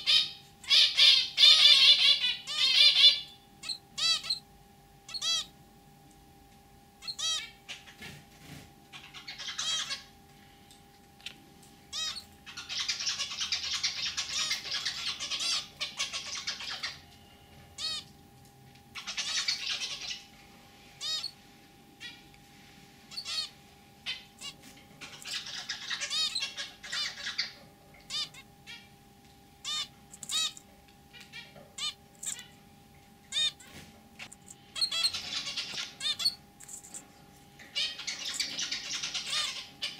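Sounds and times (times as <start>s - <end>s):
finches beeping calls: 0.0s - 4.5s, 5.1s - 5.5s, 7.0s - 7.9s, 9.0s - 10.1s, 11.9s - 17.1s, 17.8s - 18.1s, 19.0s - 20.3s, 21.0s - 21.4s, 23.1s - 28.8s, 29.6s - 32.5s, 33.3s - 37.0s, 37.7s - 39.9s
finch buzzy song: 0.0s - 5.5s, 7.0s - 10.2s, 11.2s - 18.2s, 18.9s - 22.4s, 23.1s - 32.6s, 33.2s - 39.9s.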